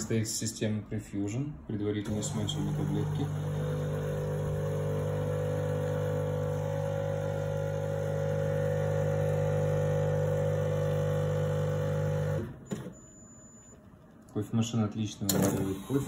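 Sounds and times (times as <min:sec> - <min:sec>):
coffee machine pump humming: 0:02.0 - 0:12.7.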